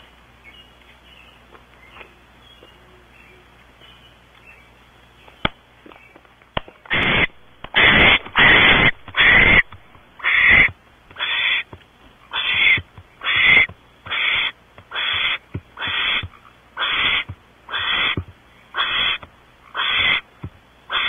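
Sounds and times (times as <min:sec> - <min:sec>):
owl rasping screeches: 0:06.9 - 0:20.3.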